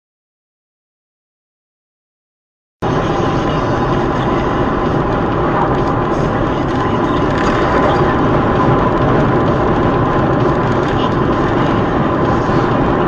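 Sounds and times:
vehicle engine and road noise: 2.8s - 13.0s.

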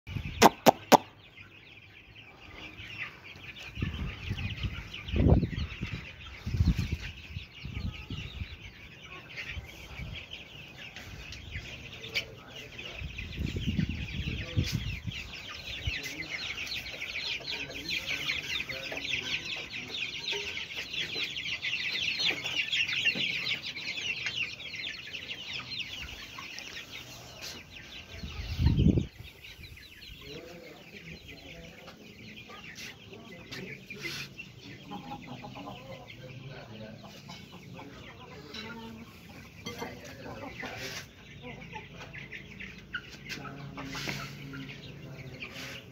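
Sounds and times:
chickens clucking and cheeping: 0.1s - 45.9s.

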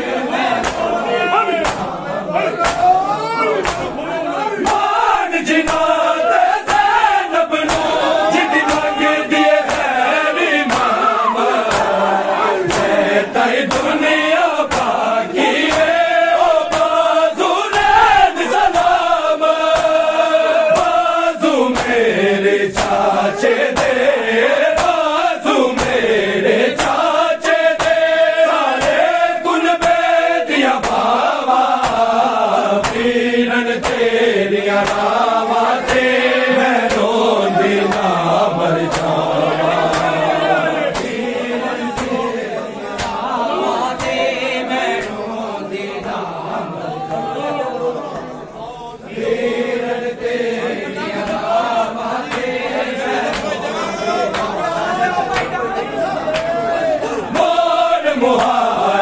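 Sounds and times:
men chanting a lament: 0.0s - 59.0s
chest-beating slaps: 0.5s - 1.0s, 1.6s - 3.0s, 3.6s - 4.0s, 4.6s - 5.0s, 6.6s - 7.0s, 7.6s - 17.1s, 17.7s - 22.0s, 22.7s - 24.1s, 24.7s - 26.1s, 26.7s - 29.2s, 29.8s - 30.2s, 30.8s - 34.2s, 34.8s - 35.2s, 35.8s - 36.2s, 36.8s - 37.2s, 37.8s - 42.3s, 42.9s - 43.3s, 43.9s - 44.3s, 44.9s - 45.2s, 52.2s - 52.6s, 53.2s - 53.6s, 54.3s - 54.6s.

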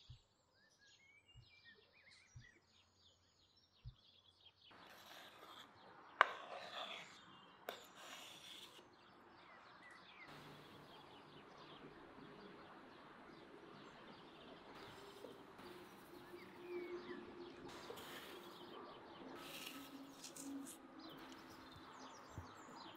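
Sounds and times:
bird chirps: 0.0s - 6.1s, 6.8s - 22.9s
faint outdoor background: 0.0s - 22.9s
chopped onion sliding: 4.8s - 8.8s, 19.4s - 21.6s.

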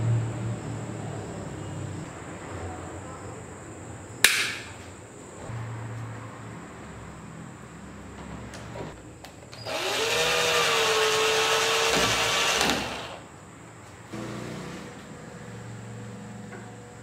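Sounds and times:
cordless drill driving screw: 9.6s - 13.2s.

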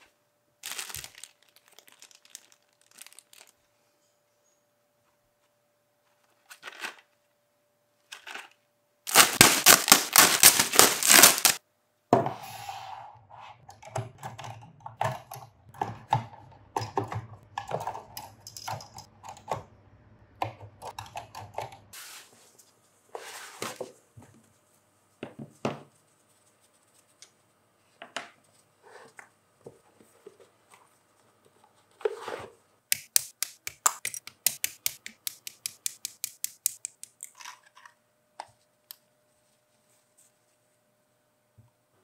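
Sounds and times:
tools tapping and rustling: 14.0s - 19.1s, 32.9s - 37.9s.

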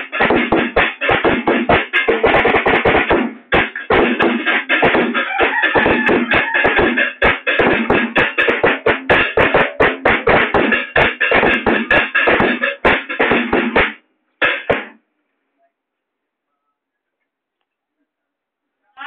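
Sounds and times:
drum kit beat: 0.0s - 15.0s.

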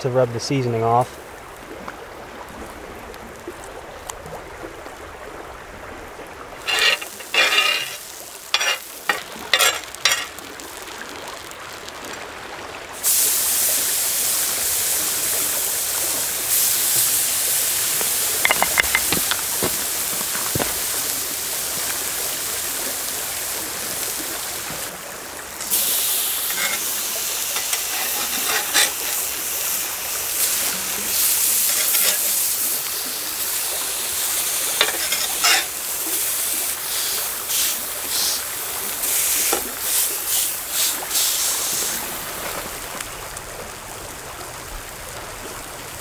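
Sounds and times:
fish sizzling on a griddle: 6.6s - 12.0s, 12.9s - 42.9s.

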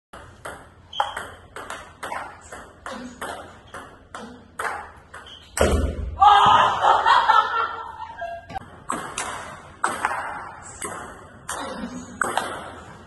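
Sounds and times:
ping pong ball clicking: 0.2s - 4.0s.

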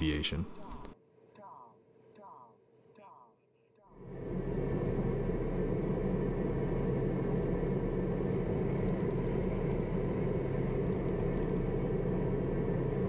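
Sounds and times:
turboprop cabin rumble: 4.1s - 13.0s.

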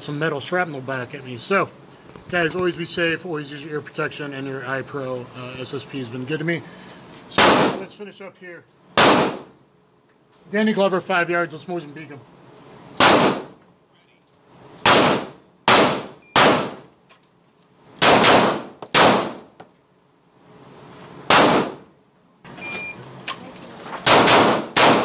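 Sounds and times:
echoing pistol gunshots: 7.4s - 7.9s, 9.0s - 9.5s, 13.0s - 13.5s, 14.8s - 16.8s, 18.0s - 19.4s, 21.3s - 21.8s, 24.0s - 25.0s.

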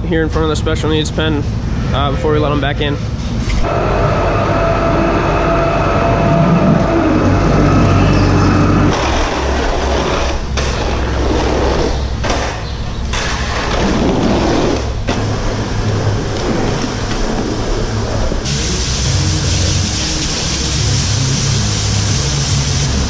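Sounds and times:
loader engine running: 3.6s - 12.2s, 17.9s - 23.0s
hose spraying water: 18.4s - 23.0s.

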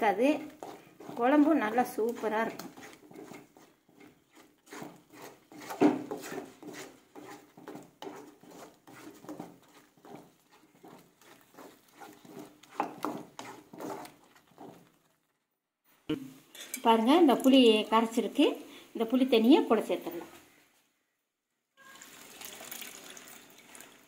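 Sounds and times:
spatula scraping paste in pan: 0.0s - 15.2s.

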